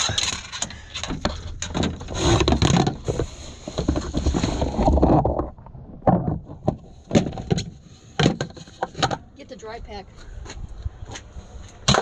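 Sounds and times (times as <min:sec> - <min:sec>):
hard cases knocking and clattering: 0:00.0 - 0:05.4, 0:06.0 - 0:09.3.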